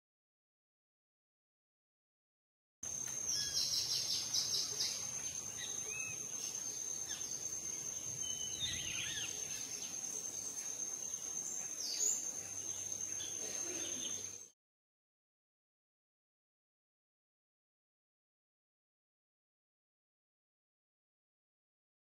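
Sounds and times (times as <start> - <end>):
high-pitched insect trill: 2.8 - 14.6
birdsong: 2.9 - 14.6.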